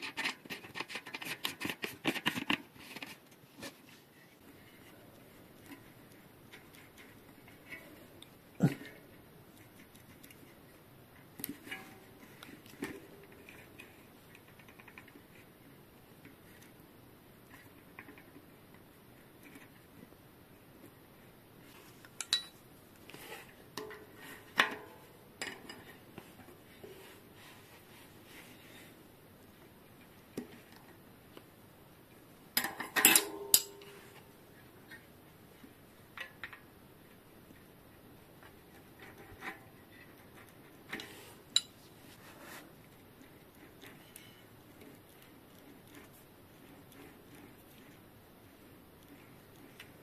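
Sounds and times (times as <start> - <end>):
metal tools clinking: 22.2 - 22.6.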